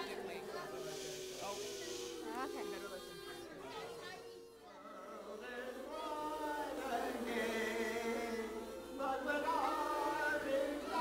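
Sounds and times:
kazoos buzzing a tune: 0:00.0 - 0:04.7.

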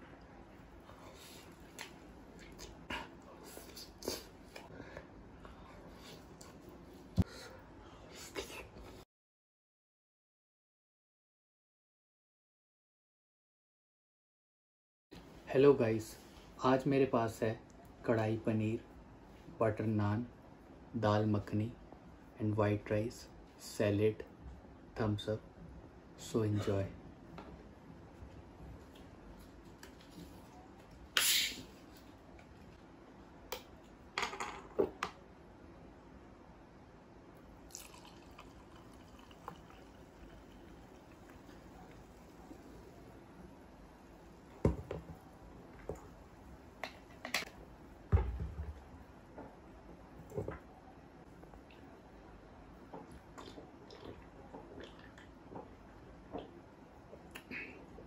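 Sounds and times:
bottle cap hiss of escaping gas: 0:31.2 - 0:31.7
fizzy drink pouring into glass: 0:37.6 - 0:42.9.

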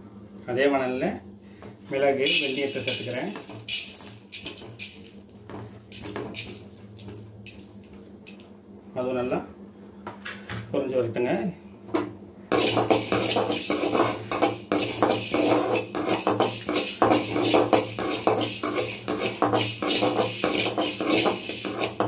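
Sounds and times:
metal spatula scraping a pan: 0:12.5 - 0:22.0.

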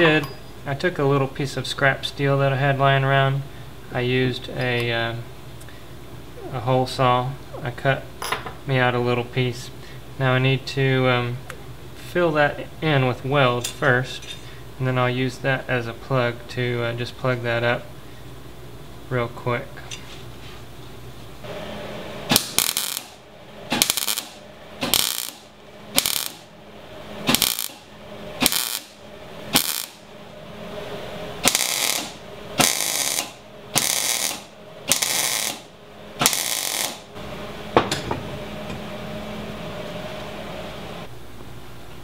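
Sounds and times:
arc welder crackling: 0:21.4 - 0:26.5, 0:27.2 - 0:30.2, 0:31.4 - 0:37.3.

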